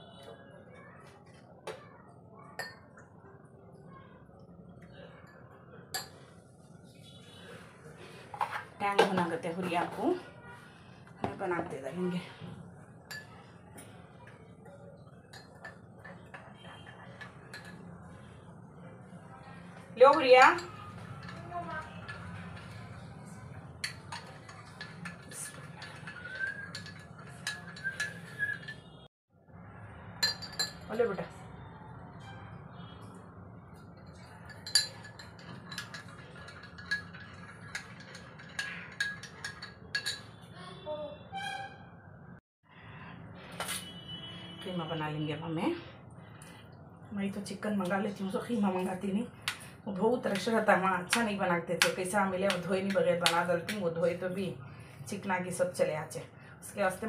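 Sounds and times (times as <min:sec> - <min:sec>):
spoon clinking against glass: 0:02.6 - 0:03.0, 0:05.2 - 0:06.3, 0:13.1 - 0:13.5, 0:15.2 - 0:18.0, 0:20.1 - 0:22.9, 0:23.8 - 0:29.0, 0:30.2 - 0:30.9, 0:34.0 - 0:40.5.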